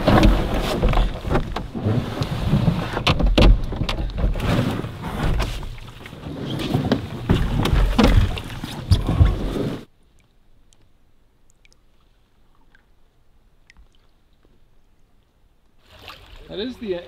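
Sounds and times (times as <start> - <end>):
knocks and scrapes on canoe hull: 0.0 - 9.9
faint ticks: 10.1 - 12.9.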